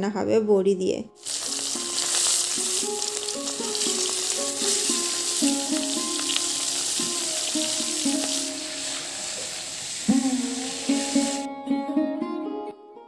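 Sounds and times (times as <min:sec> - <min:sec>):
melodic background music: 0:01.1 - 0:09.3
fish sizzling in hot oil: 0:01.2 - 0:11.5.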